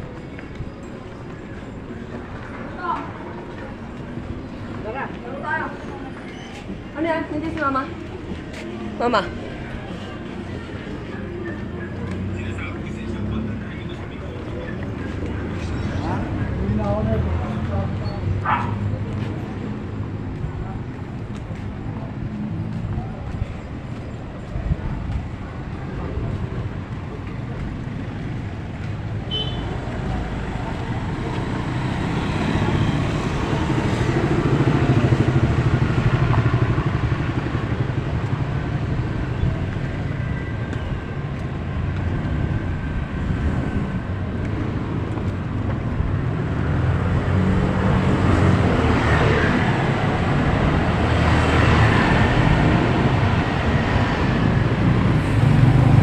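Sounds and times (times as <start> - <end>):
motorcycle passing: 28.4 - 40.1.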